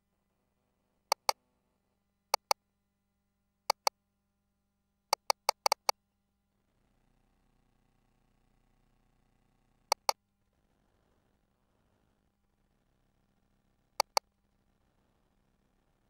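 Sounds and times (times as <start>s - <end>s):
sharp console clicks: 1.1s - 1.4s, 2.4s - 2.6s, 3.7s - 3.9s, 5.2s - 5.9s, 9.9s - 10.2s, 14.0s - 14.2s.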